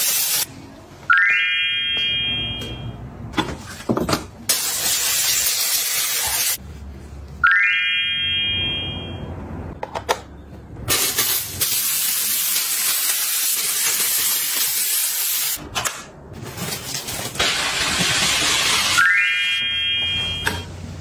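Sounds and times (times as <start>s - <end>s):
steam cleaner hissing: 0.0s - 0.5s, 4.5s - 6.6s, 10.9s - 15.6s, 17.4s - 19.0s
electronic chime sweeping up: 1.1s - 2.9s, 7.4s - 9.3s, 19.0s - 20.6s.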